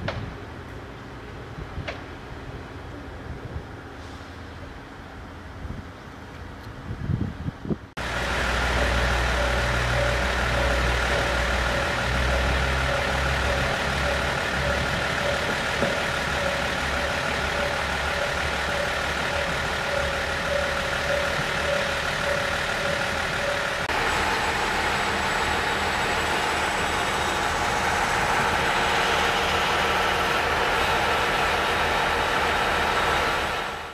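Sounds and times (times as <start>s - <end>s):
diesel railcar engine running: 0.0s - 33.9s
pulsing steady tone: 8.1s - 33.7s.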